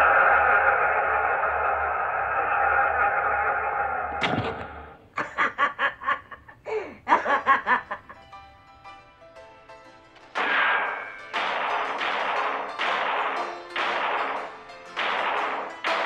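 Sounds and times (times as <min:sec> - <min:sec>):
steady droning tone: 0:00.0 - 0:05.0
cackling laughter: 0:05.1 - 0:08.2.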